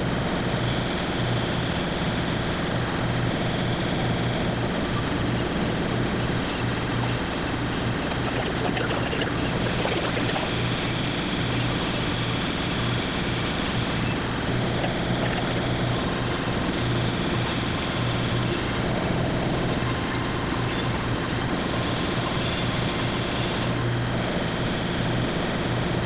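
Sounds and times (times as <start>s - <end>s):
milling machine humming: 7.9s - 10.9s.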